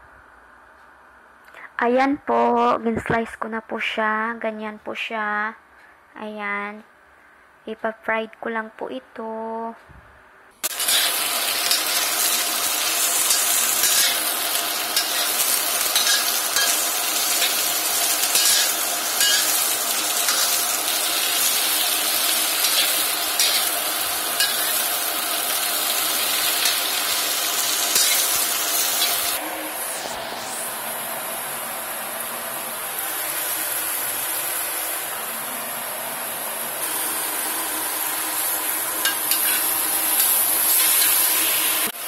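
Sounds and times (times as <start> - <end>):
zucchini sizzling in oil: 10.6 - 35.9, 36.5 - 42.0
metal spatula scraping pan: 13.0 - 14.3, 15.0 - 17.6, 18.2 - 19.6, 24.4 - 24.8, 39.1 - 41.2.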